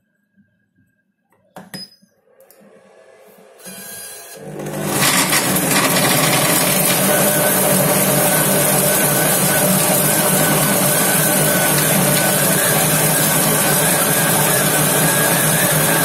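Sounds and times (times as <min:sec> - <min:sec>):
food processor blades whirring: 0:03.6 - 0:16.0.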